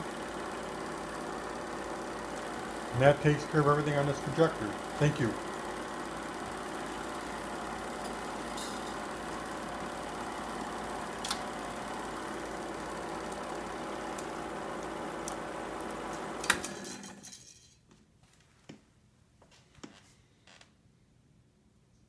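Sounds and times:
movie projector whirring: 0.0 - 17.2.

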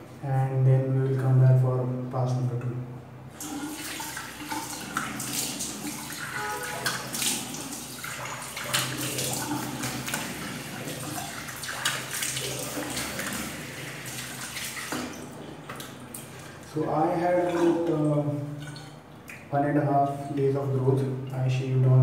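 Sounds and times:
running water: 3.3 - 19.6
water splashing on face: 3.4 - 16.6.

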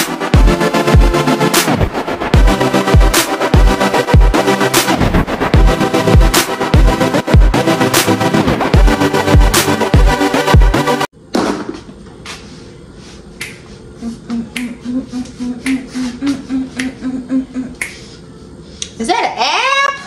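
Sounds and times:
background music: 0.0 - 11.1.

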